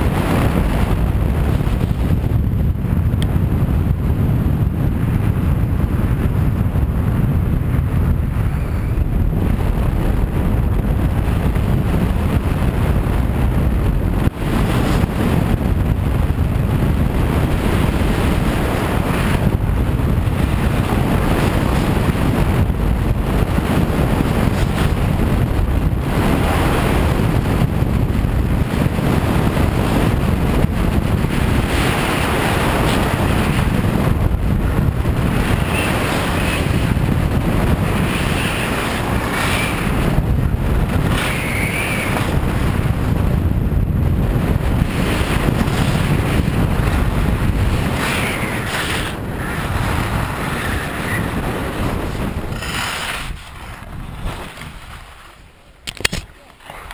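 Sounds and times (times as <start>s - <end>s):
wind buffeting microphone: 0.0s - 56.9s
skis scraping over packed snow: 44.4s - 55.7s.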